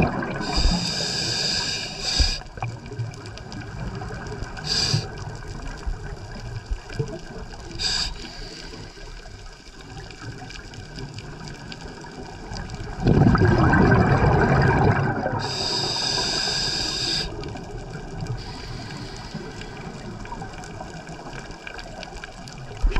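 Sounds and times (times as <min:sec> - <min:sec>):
exhaled bubbles from regulator: 0:00.0 - 0:03.0, 0:12.8 - 0:20.6
muffled underwater hiss: 0:00.0 - 0:13.0, 0:13.8 - 0:22.9.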